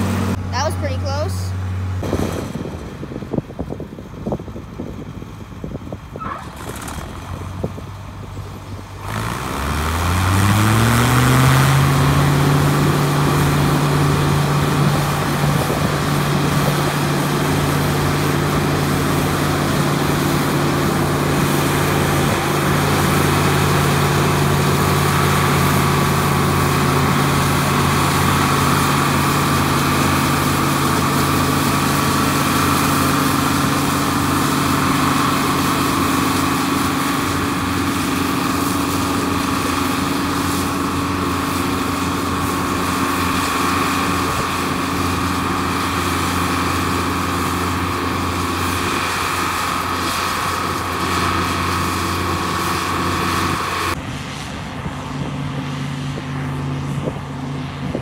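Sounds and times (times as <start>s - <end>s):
combine harvester threshing: 0.0s - 57.8s
farm machinery engines droning: 0.0s - 58.0s.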